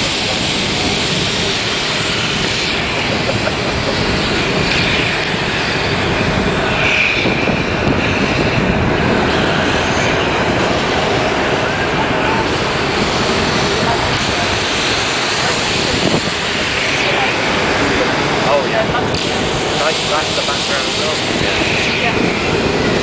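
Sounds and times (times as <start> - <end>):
tram rumbling on rails: 0.0 - 23.0.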